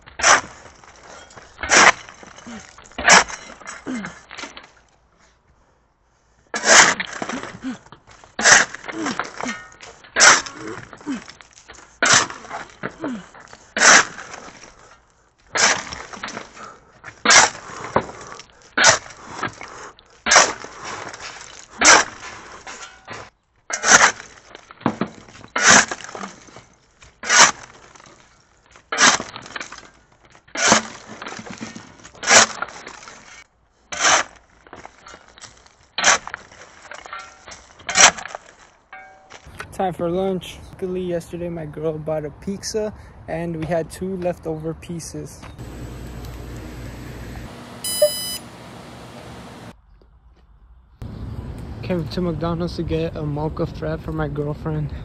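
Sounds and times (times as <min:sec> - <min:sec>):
pickaxe striking concrete rubble: 0:00.1 - 0:04.2, 0:12.0 - 0:13.0, 0:20.2 - 0:20.7, 0:30.5 - 0:33.2, 0:35.4 - 0:39.4.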